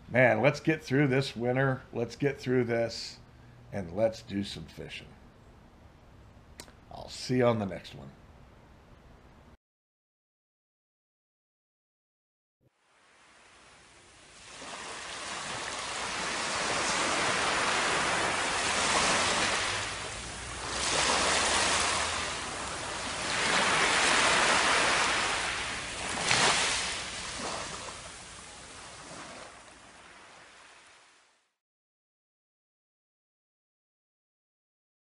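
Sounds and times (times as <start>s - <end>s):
ocean surf washing up beach: 12.8s - 31.3s.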